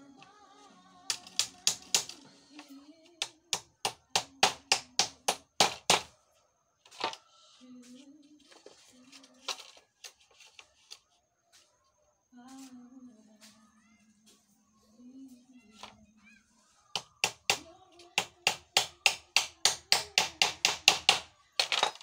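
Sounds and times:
faint music: 0:00.0 - 0:22.0
hammer striking nail: 0:01.1 - 0:02.2, 0:03.2 - 0:06.1, 0:18.2 - 0:21.9.

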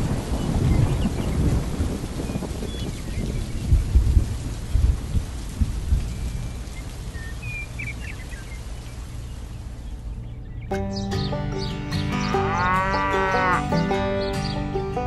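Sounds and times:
heavy thunder claps: 0:00.0 - 0:06.1
rumbling thunder: 0:00.0 - 0:06.6
steady rain: 0:00.0 - 0:10.6.

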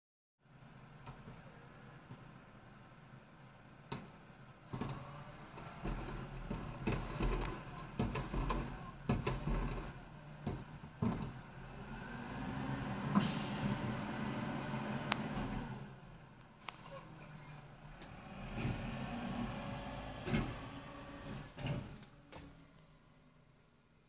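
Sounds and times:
truck engine speeding up: 0:04.8 - 0:22.0
cart knocking and banging: 0:05.6 - 0:11.4
sharp air hiss: 0:13.1 - 0:13.9.

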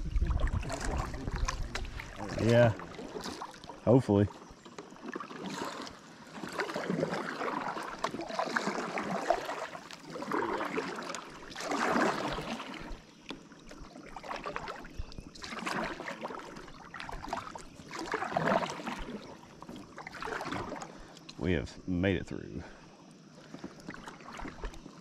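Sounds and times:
river water rushing and splashing: 0:05.1 - 0:13.0, 0:14.0 - 0:21.0.

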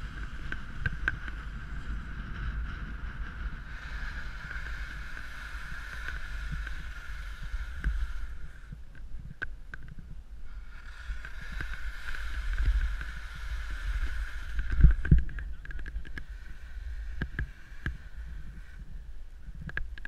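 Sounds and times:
sharp ticks: 0:00.0 - 0:01.6, 0:10.7 - 0:18.8
skis scraping on snow: 0:00.0 - 0:08.8, 0:10.5 - 0:18.9
wind rumble on microphone: 0:00.0 - 0:20.0.

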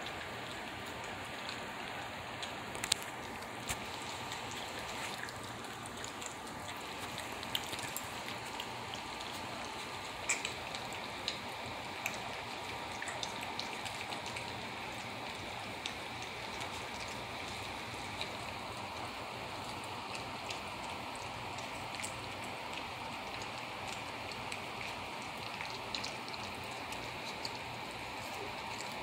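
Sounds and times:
puppies crunching kibble: 0:00.0 - 0:29.0.

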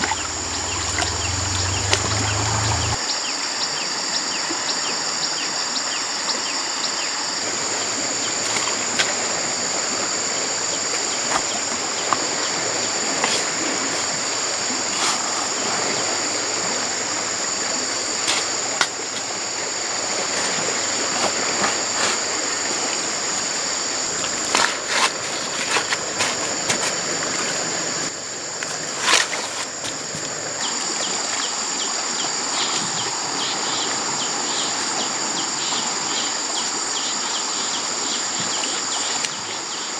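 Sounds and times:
insects droning: 0:00.0 - 0:39.9
rushing river water: 0:00.0 - 0:39.9.

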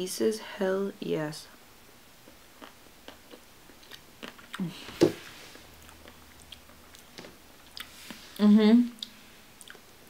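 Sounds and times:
person chewing ice cream: 0:02.6 - 0:08.0, 0:09.0 - 0:09.9
wet mouth clicks: 0:09.0 - 0:09.8.

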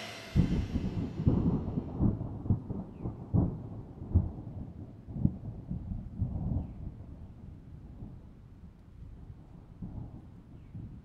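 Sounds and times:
rolling thunder: 0:00.0 - 0:04.6.

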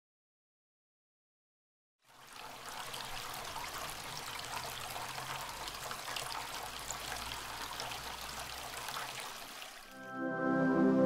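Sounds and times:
fountain water trickling onto stones: 0:02.0 - 0:10.0.

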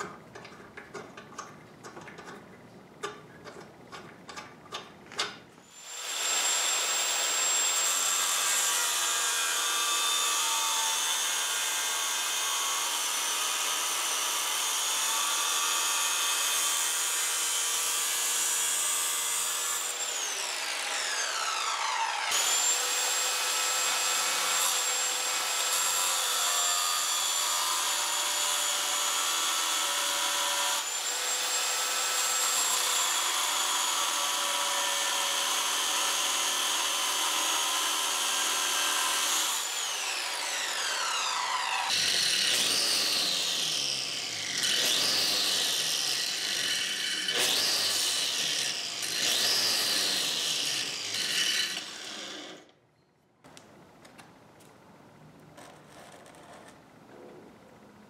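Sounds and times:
cutoff wheel grinding steel: 0:19.5 - 0:23.2, 0:38.8 - 0:52.7.

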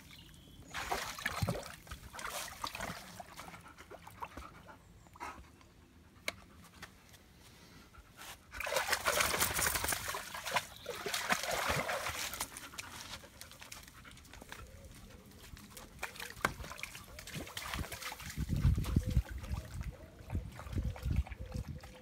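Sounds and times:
dog splashing through water: 0:00.7 - 0:04.4, 0:08.6 - 0:21.9.

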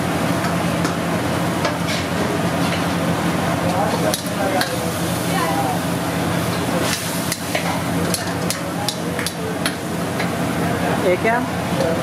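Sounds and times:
gravy sizzling: 0:00.0 - 0:12.0.

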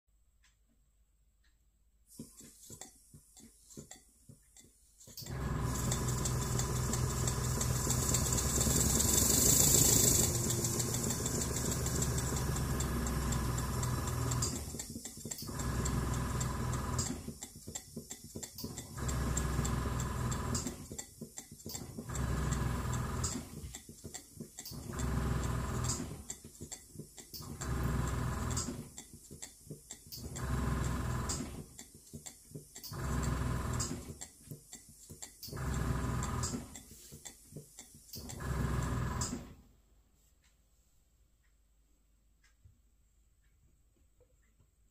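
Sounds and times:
model steam engine running: 0:05.2 - 0:39.4.

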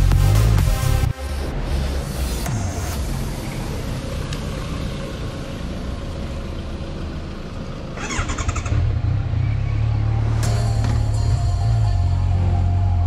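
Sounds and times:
electronic music: 0:00.0 - 0:04.0, 0:09.2 - 0:13.0
noisy rush: 0:00.0 - 0:06.0
motorcycle engine running: 0:02.5 - 0:12.9.

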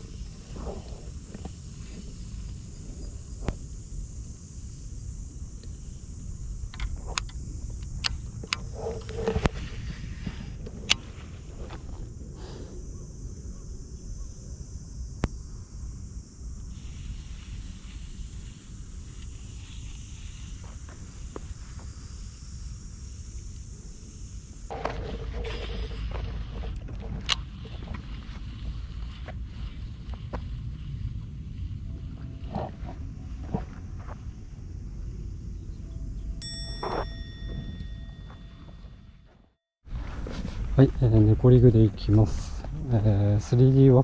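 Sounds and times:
wind rumbling on microphone: 0:00.0 - 0:39.2, 0:39.8 - 0:44.0
insects chirring: 0:00.0 - 0:44.0
faint high hiss: 0:09.4 - 0:26.8.

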